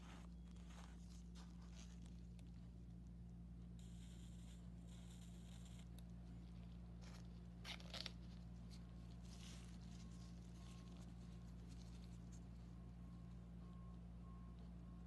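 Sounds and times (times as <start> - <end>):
soft rustling: 0.0 - 2.6, 6.3 - 12.8
low electrical hum: 0.0 - 15.0.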